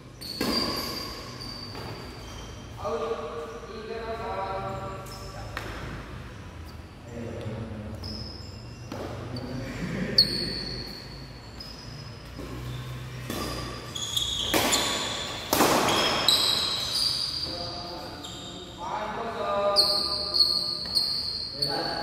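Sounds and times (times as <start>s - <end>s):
shoes squeaking on court floor: 0.0s - 22.0s
racket hitting shuttlecock: 0.2s - 2.0s, 12.4s - 17.0s.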